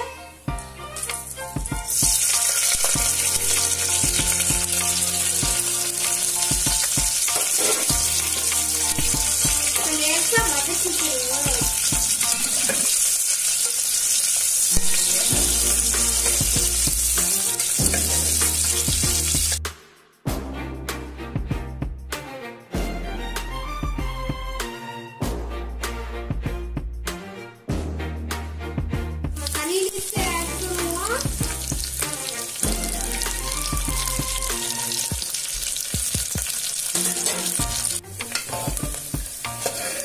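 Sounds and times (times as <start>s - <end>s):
onions sizzling in hot oil: 0.6s - 19.6s, 29.4s - 40.0s
ladle stirring in a pot: 6.8s - 9.6s.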